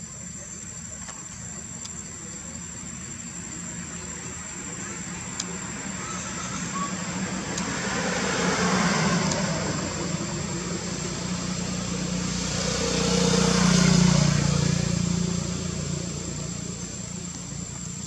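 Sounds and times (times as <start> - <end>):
vehicle engine passing by: 4.6 - 18.0.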